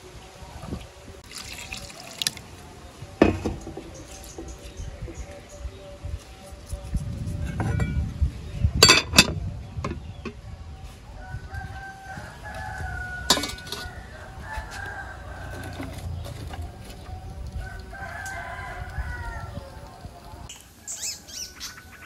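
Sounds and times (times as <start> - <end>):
rooster crowing: 11.2 - 19.9.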